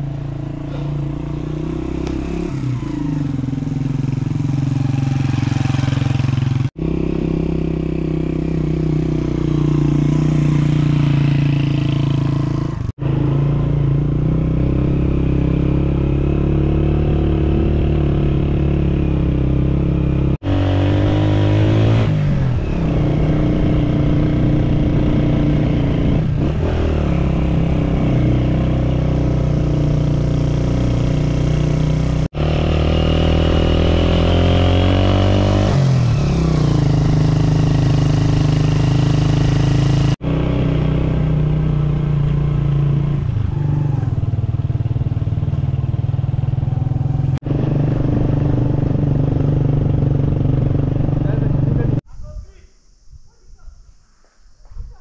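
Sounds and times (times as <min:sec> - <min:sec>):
motorcycle engine revving: 0:00.0 - 0:52.1.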